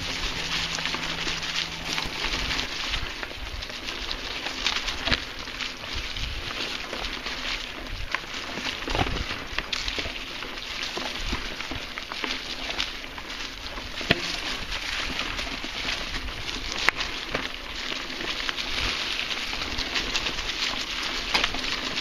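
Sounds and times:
bike tyres rolling over dry leaves: 0:00.0 - 0:22.0
bike knocks: 0:14.1 - 0:14.6.

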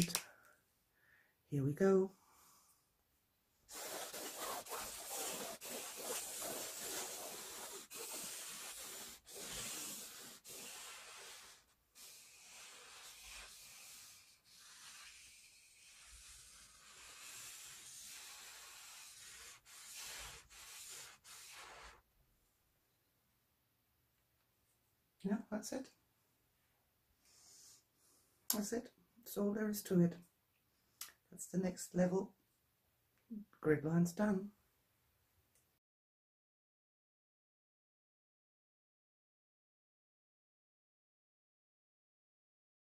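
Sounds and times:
marker scratching on canvas: 0:03.7 - 0:22.0.

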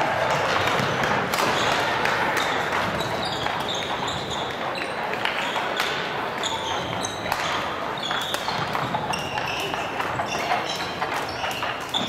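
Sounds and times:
sports hall background noise: 0:00.0 - 0:12.0
shoes squeaking on court: 0:00.3 - 0:12.0.

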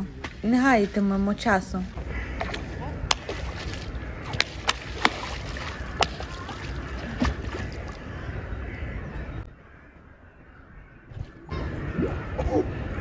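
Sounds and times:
seals slapping flippers: 0:00.0 - 0:08.0
splashing water: 0:00.0 - 0:08.1.

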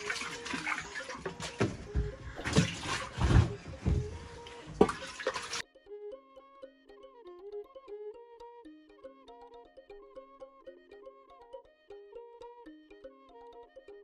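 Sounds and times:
water sloshing and splashing: 0:00.0 - 0:05.6
background music: 0:00.0 - 0:14.0.

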